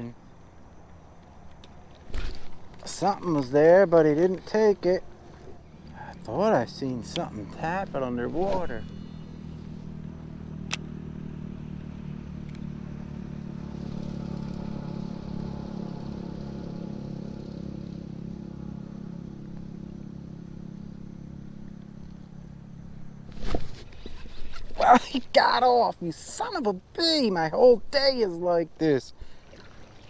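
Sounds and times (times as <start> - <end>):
engine droning: 0.0 - 30.0
sharp click: 10.6 - 10.9.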